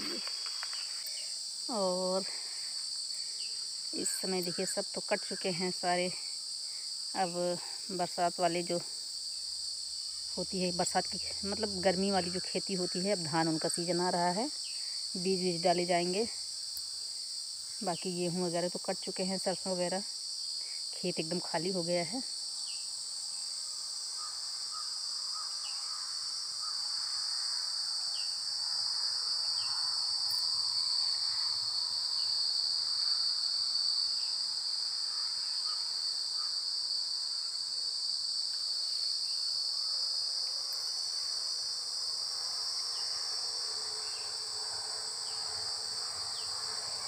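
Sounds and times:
insects droning: 0:00.0 - 0:47.0.

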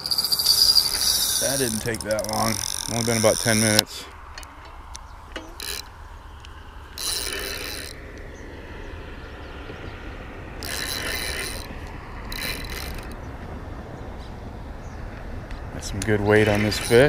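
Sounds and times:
fishing reel drag clicking: 0:00.0 - 0:03.9, 0:05.0 - 0:08.0, 0:10.6 - 0:11.7, 0:12.3 - 0:13.2, 0:16.6 - 0:17.0.

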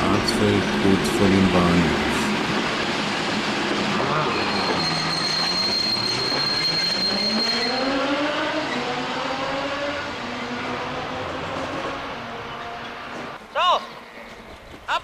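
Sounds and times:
diesel train engine: 0:00.0 - 0:14.9.

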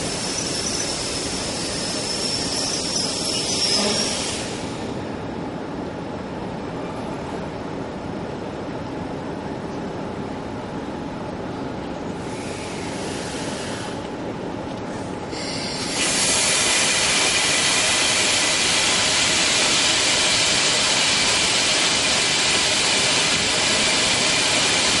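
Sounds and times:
loud steady hiss: 0:00.0 - 0:05.0, 0:12.2 - 0:14.1, 0:15.3 - 0:25.0
electric train low rumble: 0:00.0 - 0:25.0.

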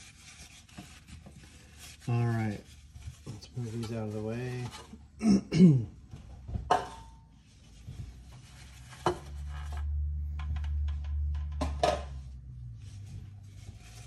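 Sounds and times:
metal pans clinking: 0:06.7 - 0:07.3.

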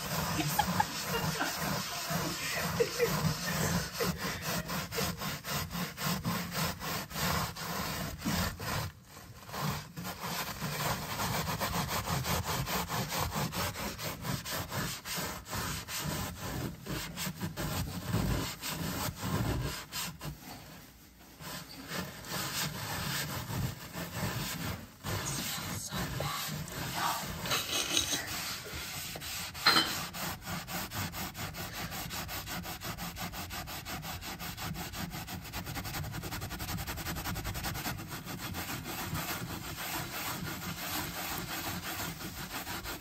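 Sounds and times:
sponge scrubbing metal sheet: 0:00.0 - 0:43.0.

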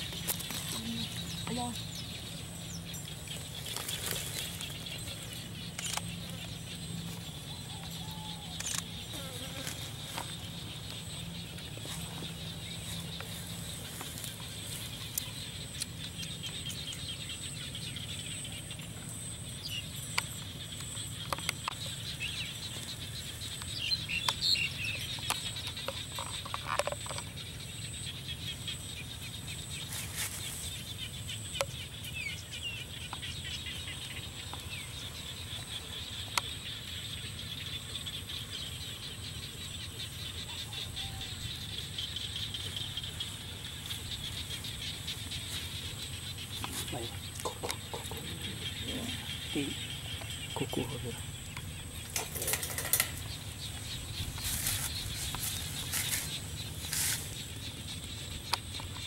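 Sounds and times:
bird chirps: 0:00.0 - 0:59.0
scattered clicks and knocks: 0:51.5 - 0:53.7.

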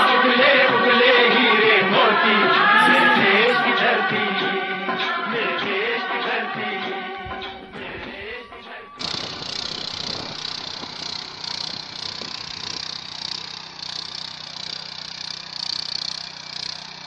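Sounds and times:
power tiller engine under load: 0:00.0 - 0:03.7, 0:09.0 - 0:17.0.

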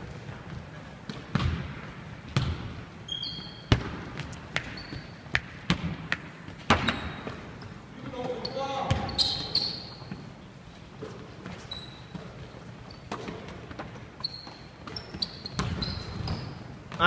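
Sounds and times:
basketball bouncing on hardwood: 0:01.3 - 0:01.8, 0:02.4 - 0:02.7, 0:03.7 - 0:07.4, 0:14.8 - 0:16.4
sneaker squeaks: 0:02.4 - 0:05.8, 0:06.5 - 0:17.0.

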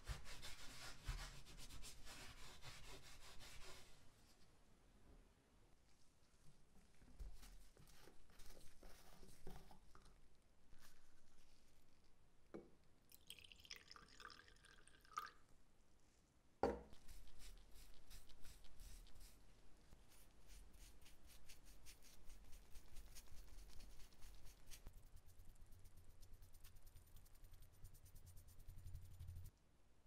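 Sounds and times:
liquid trickling: 0:13.1 - 0:15.4.

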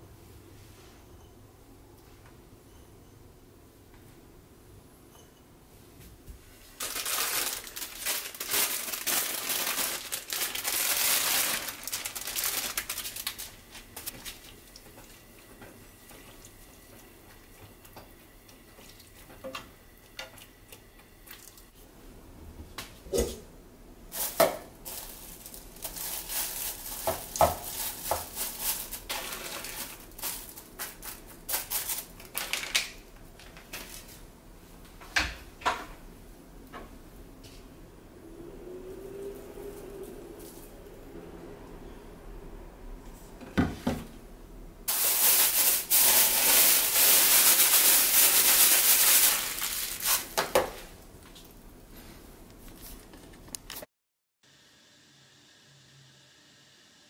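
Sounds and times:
hissing and crackling in a pan: 0:06.8 - 0:21.8, 0:24.1 - 0:33.0, 0:44.9 - 0:52.2.

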